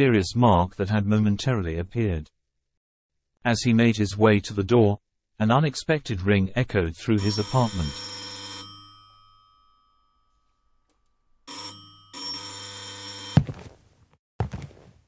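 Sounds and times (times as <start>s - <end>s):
doorbell ringing: 7.2s - 13.5s.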